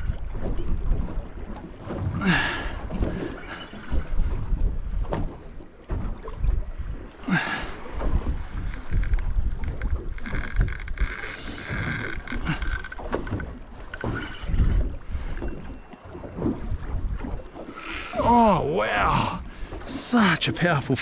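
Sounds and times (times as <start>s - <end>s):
wind buffeting microphone: 0.0s - 19.9s
water slopping around boat: 0.0s - 21.0s.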